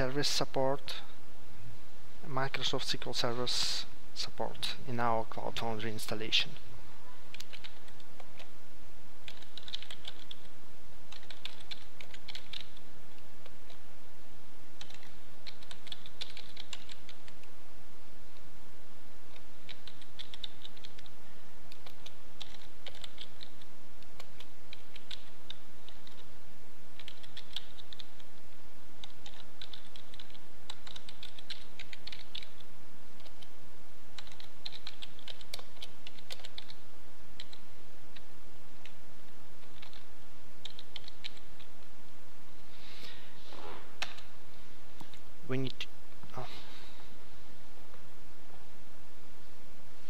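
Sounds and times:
typing on computer keyboard: 0:07.3 - 0:08.5, 0:09.2 - 0:10.5, 0:11.1 - 0:12.8, 0:14.8 - 0:17.5, 0:19.3 - 0:21.1, 0:21.7 - 0:26.3, 0:27.0 - 0:28.3, 0:29.0 - 0:33.5, 0:34.2 - 0:36.8, 0:37.4 - 0:39.0, 0:39.6 - 0:41.7.

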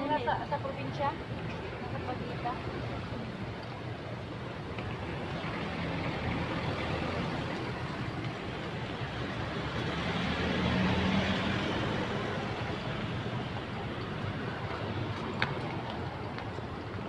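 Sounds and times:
road traffic passing: 0:00.0 - 0:17.0
vehicle passing close: 0:09.1 - 0:15.4.

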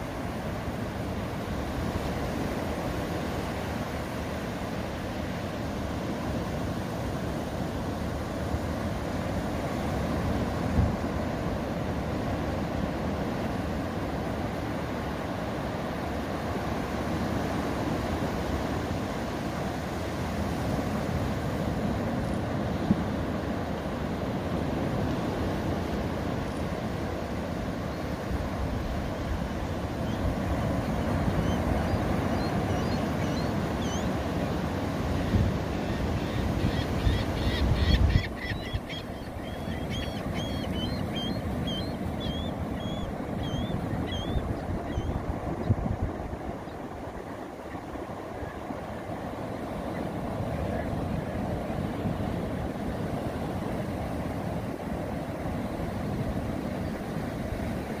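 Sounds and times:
ocean surf washing onto beach: 0:00.0 - 0:58.0
wind noise on microphone: 0:28.3 - 0:39.8, 0:41.0 - 0:47.3
birds chirping: 0:35.9 - 0:45.8.

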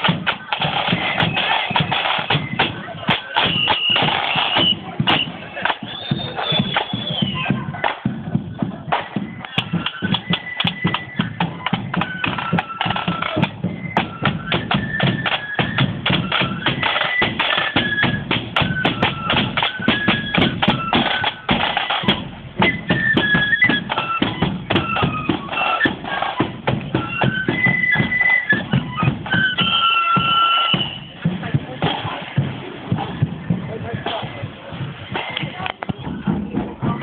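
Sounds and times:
flutes playing melody: 0:00.0 - 0:32.4
rapid drum beat: 0:00.0 - 0:37.0.

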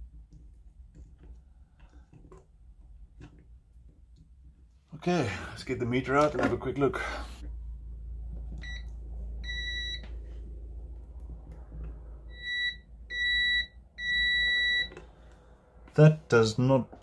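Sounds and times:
multimeter continuity beeps: 0:08.6 - 0:10.1, 0:12.3 - 0:15.0.

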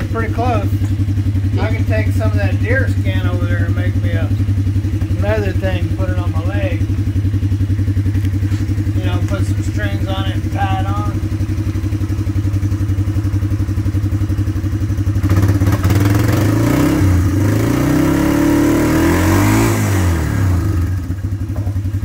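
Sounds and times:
louder engine revving: 0:00.0 - 0:12.1, 0:15.0 - 0:21.4
engine idling: 0:00.0 - 0:22.0.

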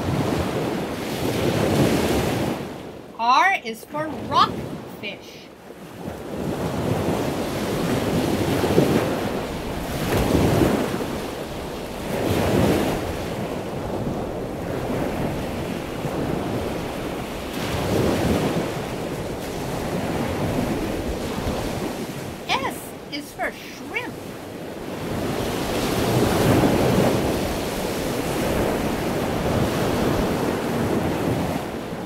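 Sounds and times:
rushing water surging: 0:15.1 - 0:24.2.

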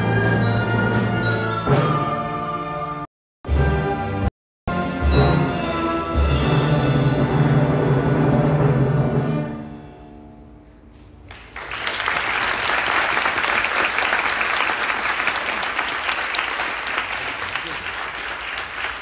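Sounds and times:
audience applause: 0:11.3 - 0:19.0.

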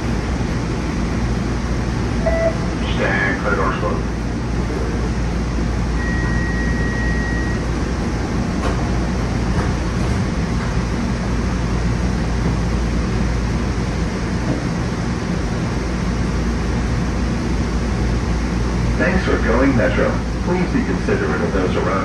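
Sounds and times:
train equipment hum and drone: 0:00.0 - 0:22.0
held high beep: 0:02.2 - 0:02.6, 0:06.0 - 0:07.6.

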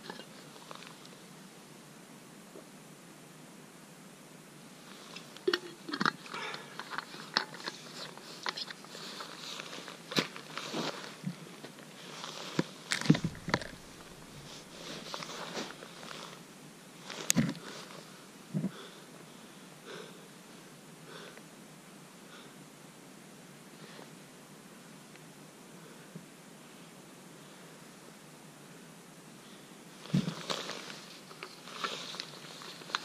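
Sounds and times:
jacket and gear rustling: 0:08.1 - 0:16.4
snow crunching: 0:12.0 - 0:16.4.

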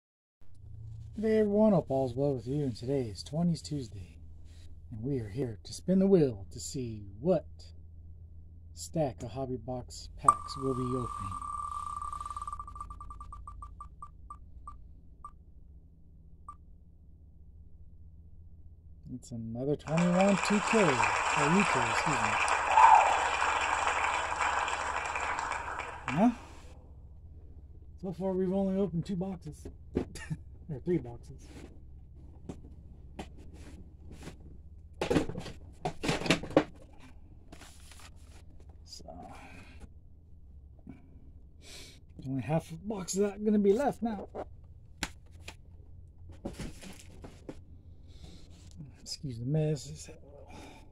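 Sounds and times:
spinning wheel ticks slowing: 0:10.3 - 0:14.4.

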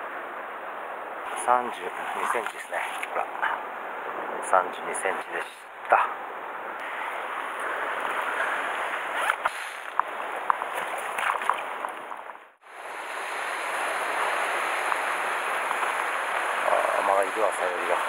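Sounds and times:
surf washing against rocks: 0:06.8 - 0:18.0.

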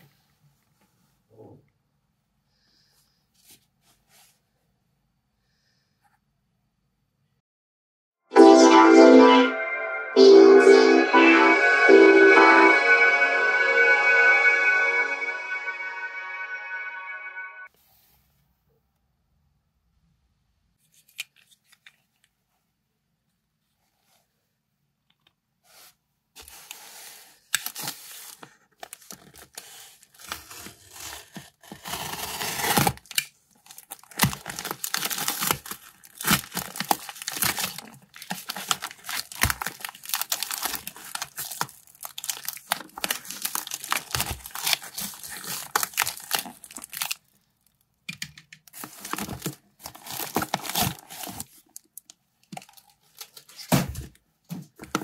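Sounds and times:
paper tearing and rustling: 0:27.6 - 0:47.2, 0:48.7 - 0:51.6
box cutter slitting envelope: 0:29.6 - 0:33.2, 0:48.8 - 0:51.5
packaging crinkling: 0:31.6 - 0:47.8, 0:48.7 - 0:53.6.

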